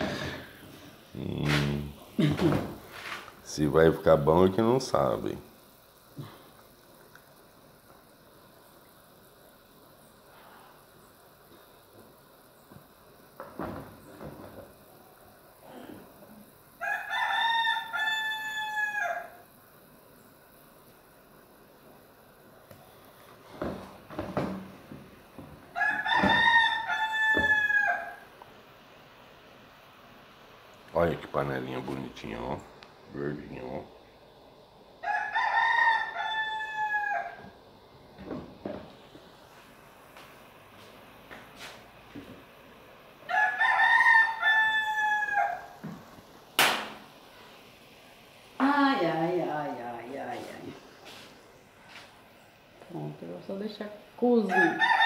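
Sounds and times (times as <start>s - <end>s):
rooster crowing: 16.7s - 19.6s, 25.6s - 28.4s, 35.0s - 37.6s, 43.2s - 46.0s, 54.4s - 55.0s
sharp knock: 46.6s - 47.0s.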